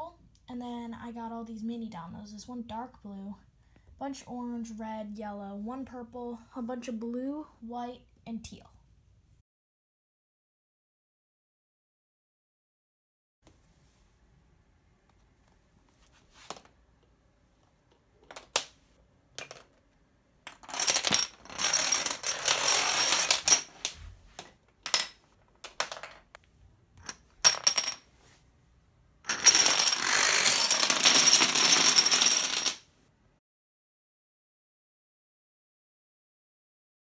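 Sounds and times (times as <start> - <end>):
plastic dominoes clattering: 19.4 - 19.8, 20.5 - 26.3, 29.3 - 32.8.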